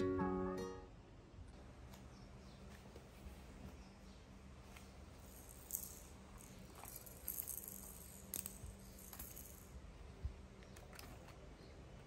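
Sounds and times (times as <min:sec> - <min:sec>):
bead rattle shaking: 0:05.0 - 0:09.9
plastic toys clattering: 0:05.1 - 0:09.8.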